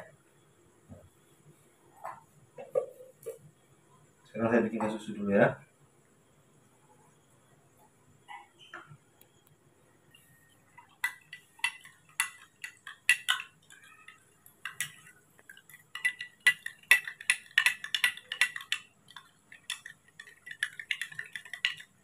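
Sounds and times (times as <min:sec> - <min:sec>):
spoon clinking against glass: 0:10.9 - 0:22.0.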